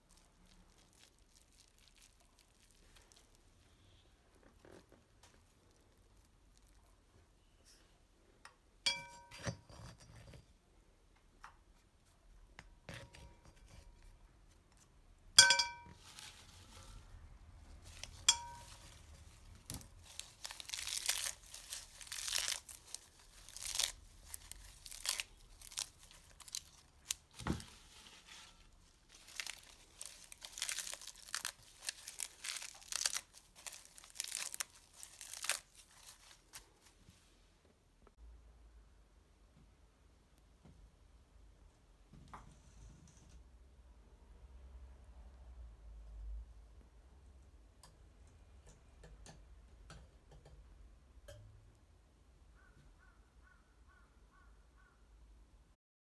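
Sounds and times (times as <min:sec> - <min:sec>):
leaves crushed and torn by hand: 0:00.0 - 0:03.4, 0:17.7 - 0:36.9
ringing clinks off ceramic bowl: 0:08.9 - 0:09.6, 0:15.4 - 0:16.0, 0:18.3 - 0:18.8.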